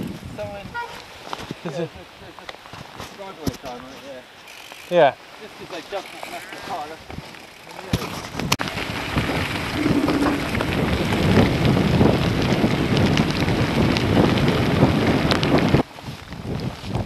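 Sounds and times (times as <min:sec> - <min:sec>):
wind buffeting microphone: 0:00.0 - 0:02.2, 0:08.1 - 0:17.0
bike tyres rattling on wet track: 0:00.0 - 0:17.0.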